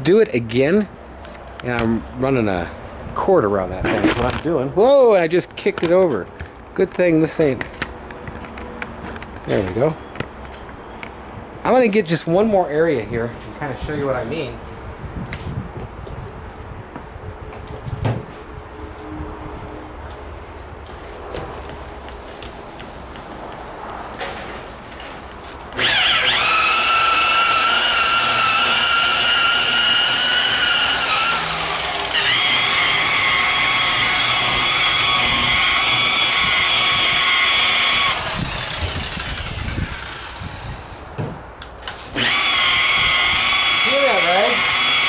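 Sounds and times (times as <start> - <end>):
electric buffer motor whining: 25.8 - 41.0, 42.2 - 45.0.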